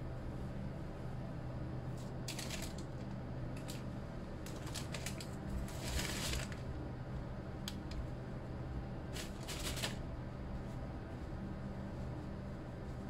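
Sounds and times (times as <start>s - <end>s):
steady low hum: 0.0s - 13.0s
paper towel rustling: 4.5s - 6.6s, 9.1s - 10.0s.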